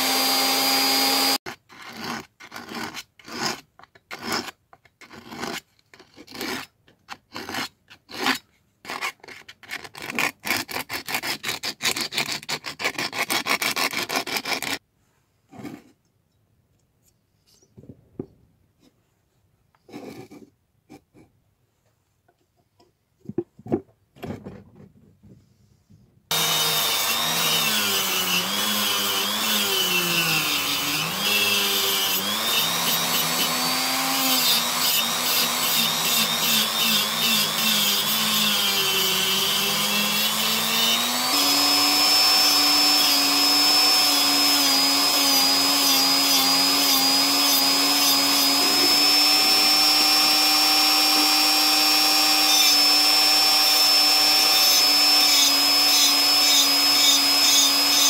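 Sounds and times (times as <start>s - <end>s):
rotary tool grinding steel: 0.0s - 6.7s, 26.3s - 58.0s.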